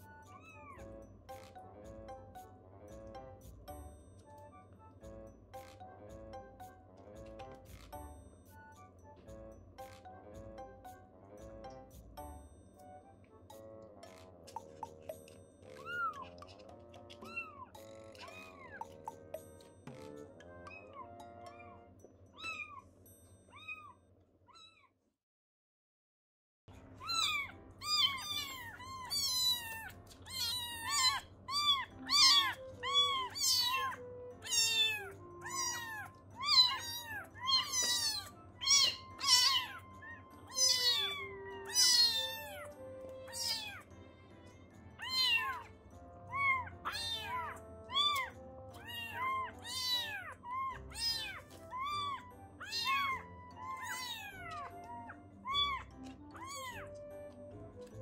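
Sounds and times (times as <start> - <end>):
soft background music: 0.0 - 24.1, 26.7 - 58.0
kittens meowing: 0.3 - 0.9, 15.7 - 19.2, 20.6 - 22.8, 27.0 - 43.9, 45.0 - 45.7, 46.3 - 57.4.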